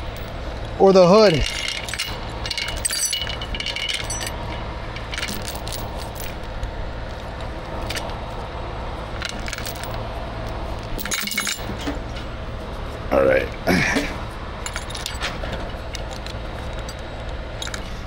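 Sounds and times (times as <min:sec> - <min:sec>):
chain clinking and rattling: 0:00.0 - 0:00.4, 0:01.3 - 0:08.2, 0:09.2 - 0:12.2, 0:14.6 - 0:18.0
truck engine idling: 0:00.0 - 0:18.0.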